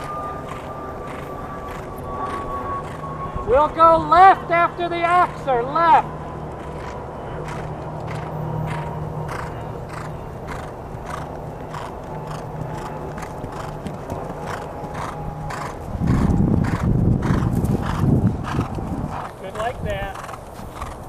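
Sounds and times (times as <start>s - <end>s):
low steady hum: 0.0s - 20.8s
hoofbeats on turf: 6.6s - 21.0s.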